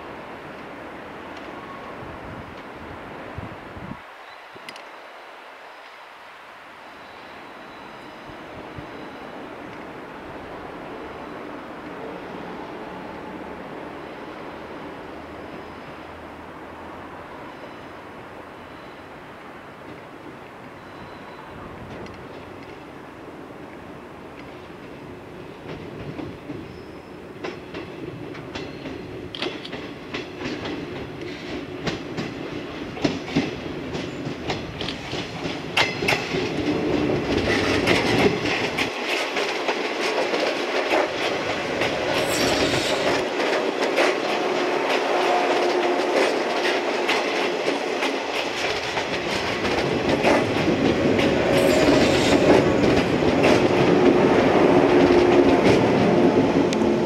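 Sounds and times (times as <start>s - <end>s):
electric train passing: 4.7s - 57.0s
wheels clicking over rail joints: 27.4s - 56.9s.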